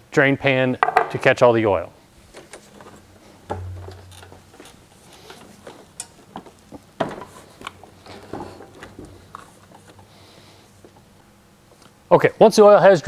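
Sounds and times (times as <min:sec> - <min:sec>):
lawn mower body knocks: 0:03.5 - 0:04.3.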